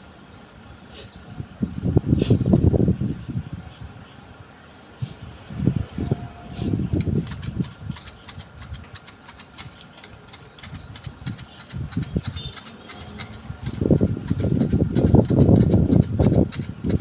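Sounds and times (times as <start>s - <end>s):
hedge shears snipping: 6.5s - 17.0s.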